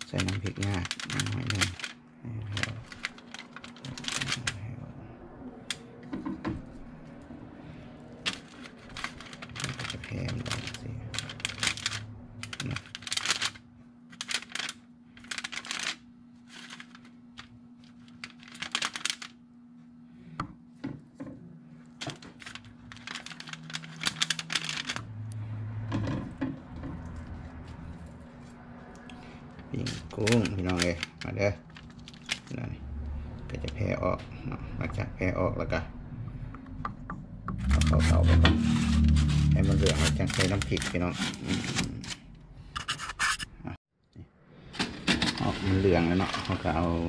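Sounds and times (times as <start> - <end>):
aluminium foil crinkling: 0.0 - 4.7, 8.2 - 19.4, 21.9 - 25.1, 29.7 - 32.7, 37.6 - 42.2
steady low hum: 0.0 - 47.0.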